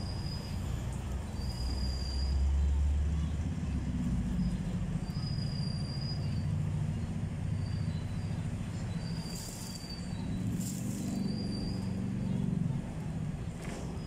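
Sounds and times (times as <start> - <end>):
high wheel squeal: 0.0 - 2.7, 5.0 - 6.6, 7.5 - 12.3
tram rumbling on rails: 0.0 - 14.0.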